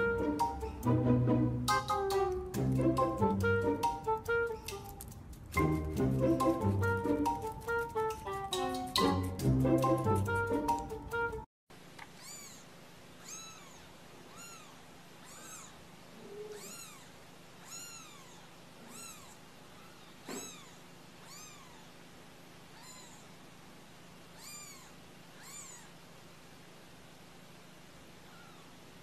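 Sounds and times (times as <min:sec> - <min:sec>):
kittens mewing: 0:12.1 - 0:23.4, 0:24.2 - 0:26.0, 0:28.2 - 0:28.8.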